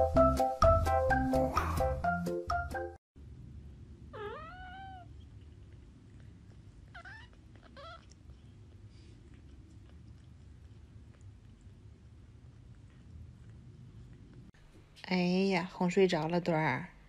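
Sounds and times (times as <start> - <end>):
steady low hum: 3.2 - 15.8
kitten mewing: 4.1 - 5.3, 6.8 - 8.4.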